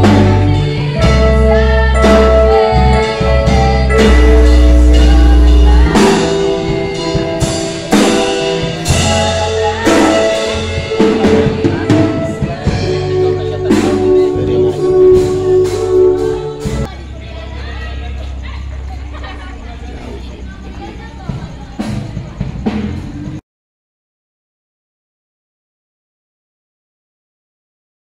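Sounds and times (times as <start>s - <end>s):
live band music over loudspeakers: 0.0s - 16.9s
person singing: 0.0s - 17.0s
drum kit beats: 0.0s - 17.1s, 19.4s - 23.4s.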